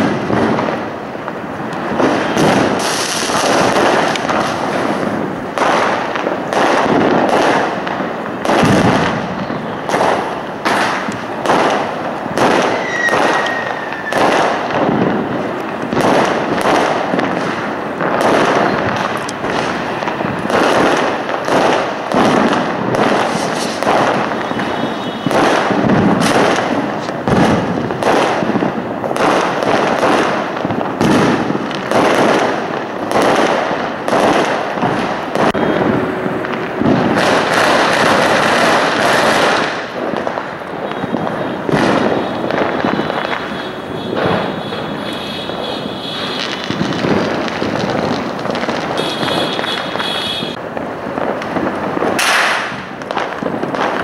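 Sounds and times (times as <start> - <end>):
fireworks bangs and crackles: 0.0 - 54.0
firework whistle: 1.8 - 5.8, 8.4 - 15.1, 23.0 - 27.6, 34.1 - 47.6, 48.9 - 50.6.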